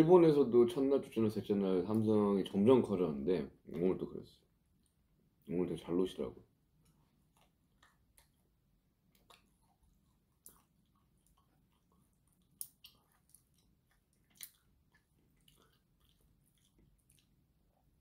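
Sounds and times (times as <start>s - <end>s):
quiet chewing: 4.6s - 5.5s, 6.6s - 18.0s.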